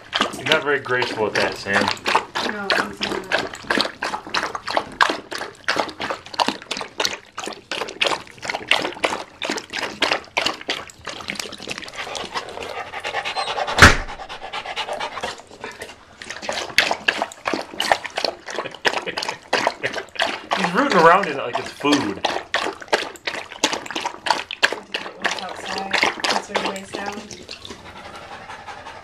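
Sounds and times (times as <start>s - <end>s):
dog lapping water from bowl: 0.0s - 29.0s
sharp knock: 13.8s - 14.2s.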